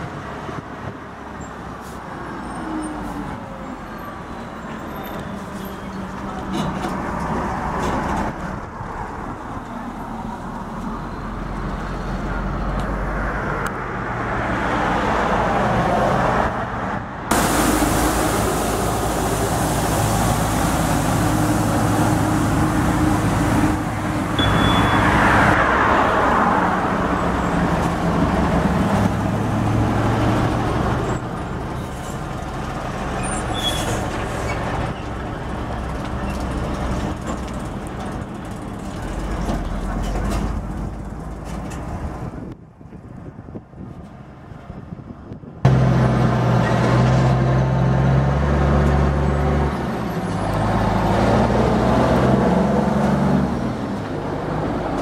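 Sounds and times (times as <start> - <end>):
diesel trucks driving past: 0.0 - 43.6, 44.2 - 55.0
street sweeper hissing rush: 17.2 - 36.1.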